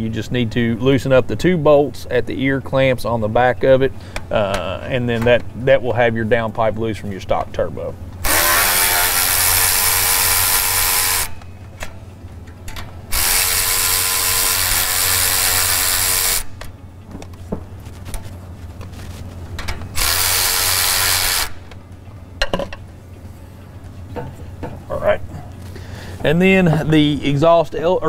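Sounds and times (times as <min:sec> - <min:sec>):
electric ratchet spinning: 0:08.2 - 0:11.4, 0:13.1 - 0:16.7, 0:19.9 - 0:21.8.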